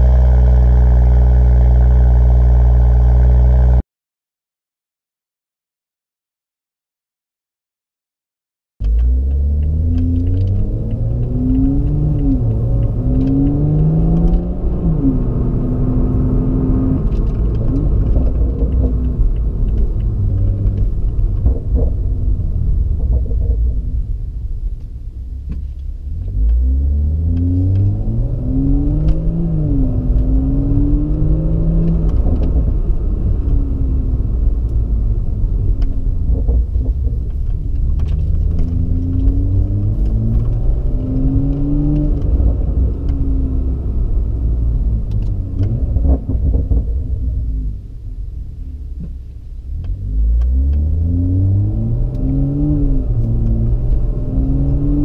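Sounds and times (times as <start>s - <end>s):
car engine accelerating: 0.0s - 3.8s, 8.8s - 55.0s.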